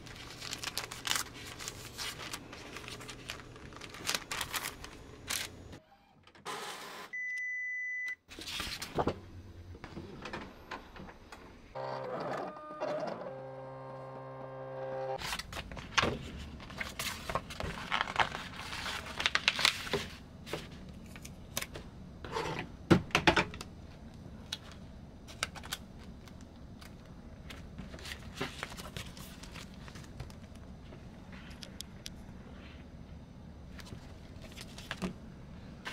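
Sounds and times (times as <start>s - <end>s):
paper rustling and crinkling: 0.0s - 5.6s, 15.2s - 21.8s, 24.4s - 31.6s, 33.7s - 35.1s.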